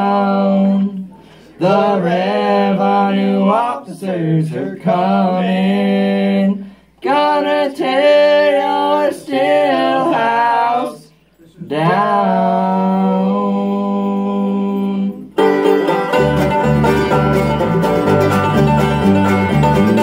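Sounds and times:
men singing in harmony: 1.6 - 15.4
string band accompaniment: 15.4 - 20.0.

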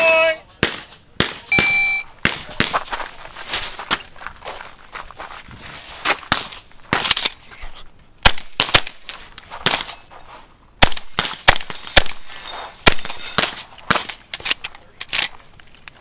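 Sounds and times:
shotgun shots: 8.2 - 9.0, 10.8 - 12.2, 12.8 - 14.2.

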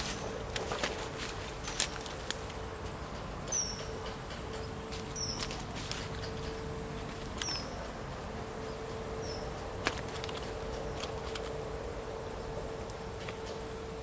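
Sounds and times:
faint steady hum: 0.0 - 14.0
bird chirping: 3.0 - 7.9, 8.5 - 9.8.

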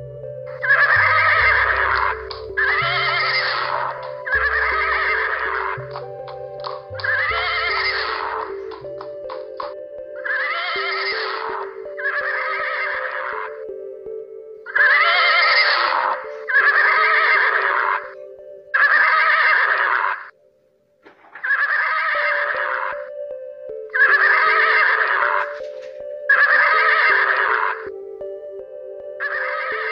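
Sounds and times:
low background music: 0.0 - 29.9
horse whinnying: 0.6 - 5.8, 7.0 - 8.5, 10.2 - 13.5, 14.7 - 18.1, 18.8 - 20.3, 21.3 - 23.1, 24.0 - 25.6, 26.3 - 27.8.

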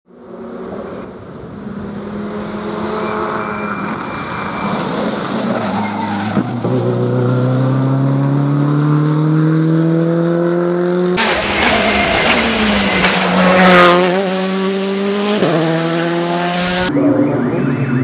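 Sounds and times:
rally car engine accelerating: 6.2 - 18.0
sharp crack: 11.2 - 14.0.

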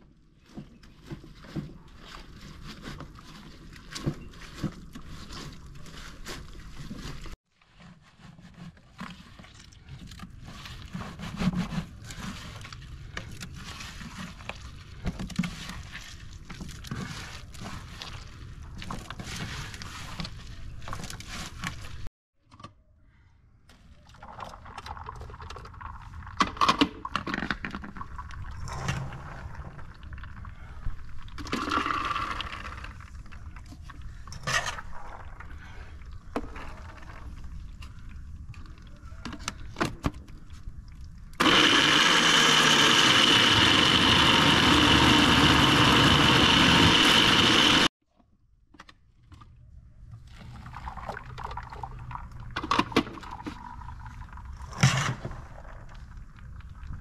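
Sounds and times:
electric blender motor running: 41.4 - 47.9.

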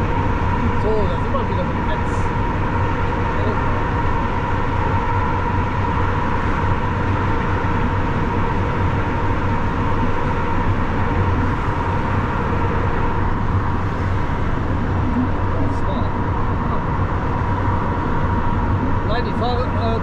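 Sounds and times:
lorry engine drone: 0.0 - 20.0
road noise: 0.0 - 20.0
thin constant whine: 0.0 - 20.0.

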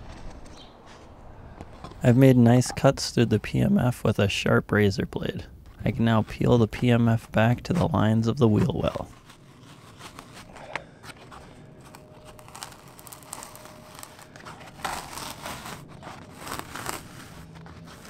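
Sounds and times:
fabric tearing and crinkling: 8.6 - 18.0.

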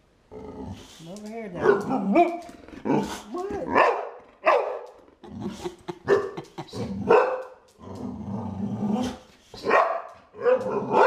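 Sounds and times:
dog growling: 0.3 - 9.3
dog barking: 1.6 - 3.0, 3.7 - 5.0, 6.0 - 6.4, 7.0 - 7.6, 9.6 - 11.0.

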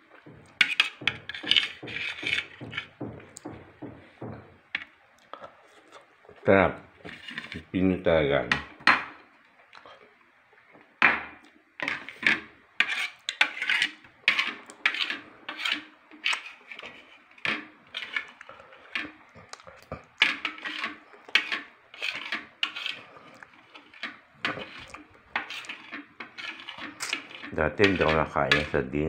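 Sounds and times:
utensil scraping ceramic bowl: 0.5 - 3.6, 6.9 - 7.7, 11.8 - 29.0.

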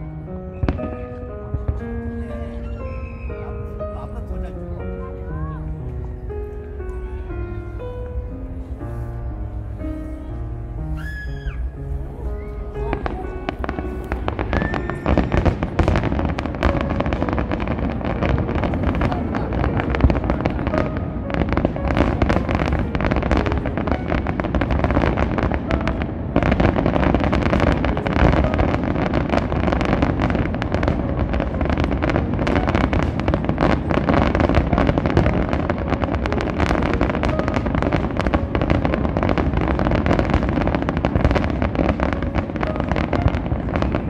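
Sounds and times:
fireworks bangs and crackles: 0.0 - 44.0.

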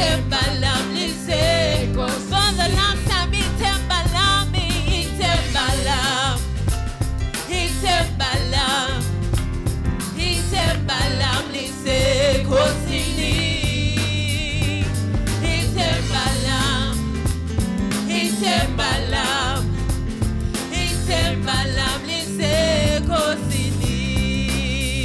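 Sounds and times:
woman singing into microphone: 0.0 - 6.5, 7.5 - 9.1, 10.2 - 17.0, 20.7 - 25.0
live band with drums and bass: 0.0 - 25.0.

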